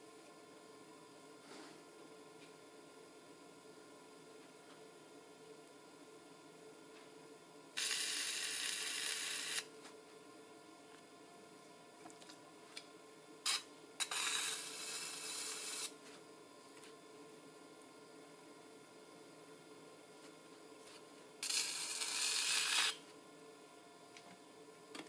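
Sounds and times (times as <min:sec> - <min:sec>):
pottery wheel humming: 0:00.0 - 0:25.0
loud bursts of hiss: 0:07.8 - 0:09.6.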